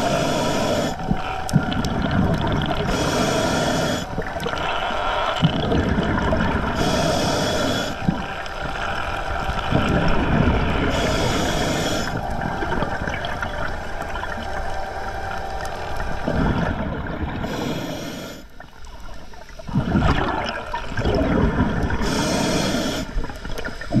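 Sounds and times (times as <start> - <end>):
regulator hissing inhale: 0.0 - 1.2, 2.8 - 4.4, 6.7 - 8.2, 10.8 - 12.5, 17.4 - 19.4, 22.0 - 24.0
gurgling exhaled bubbles: 0.0 - 24.0.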